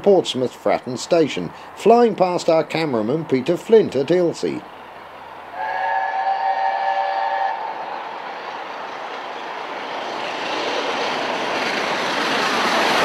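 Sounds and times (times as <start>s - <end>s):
train passing at speed: 0.0s - 13.0s
steam locomotive chime whistle: 5.6s - 7.8s.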